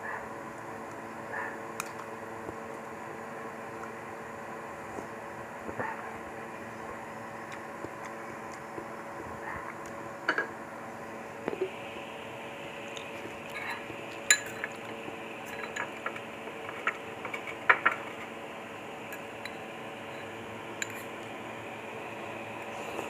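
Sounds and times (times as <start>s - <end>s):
cutlery clinking on ceramic bowls: 13.6s - 14.8s, 15.4s - 16.1s, 20.8s - 21.1s.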